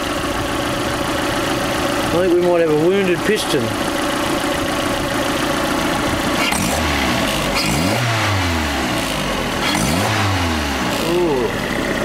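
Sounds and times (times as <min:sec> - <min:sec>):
car engine revving and idling: 0:00.0 - 0:12.0.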